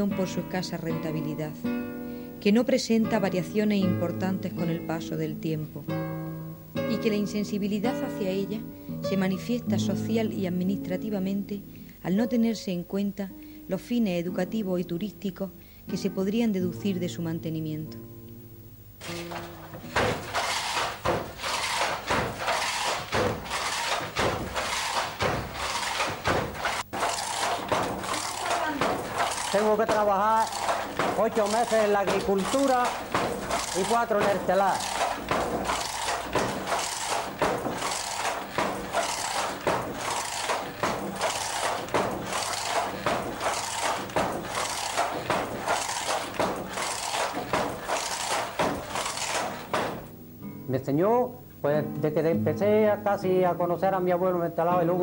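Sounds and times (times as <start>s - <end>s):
loom beater knocking: 19.0s - 50.1s
wooden treadle and shuttle clatter: 19.0s - 50.1s.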